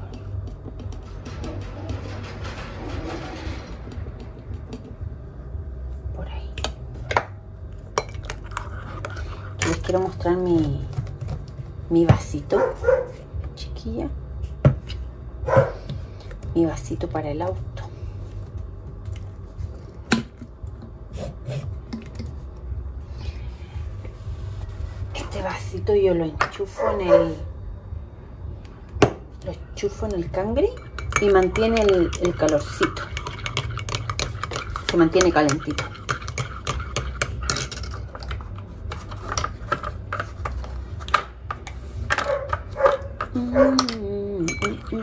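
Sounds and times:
teaspoon clinking in mug: 30.7s - 38.3s, 43.8s - 45.0s.

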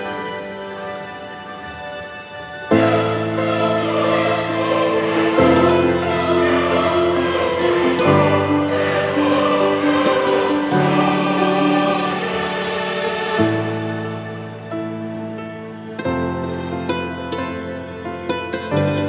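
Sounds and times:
slow held chords: 2.7s - 16.9s.

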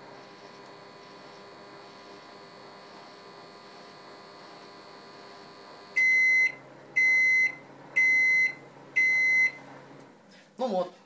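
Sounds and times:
microwave oven humming: 0.0s - 10.4s
high microwave beeps: 5.9s - 9.7s.

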